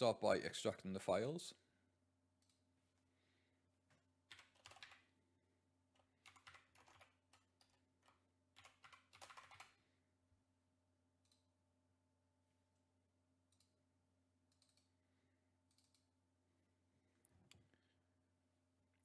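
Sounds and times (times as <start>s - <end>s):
typing on keyboard: 4.2s - 5.1s, 5.9s - 9.8s.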